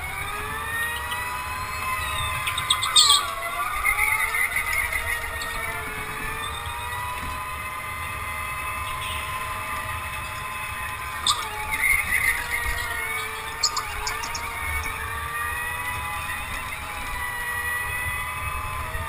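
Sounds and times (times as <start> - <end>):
go-kart motor whine: 0.0 - 19.0
tyre squeal: 1.5 - 7.0, 10.4 - 15.7.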